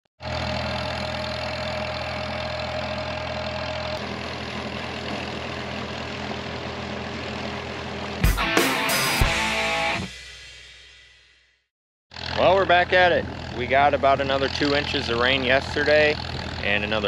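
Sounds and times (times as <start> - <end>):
tractor engine running under load: 0.2 - 8.2, 12.1 - 17.0.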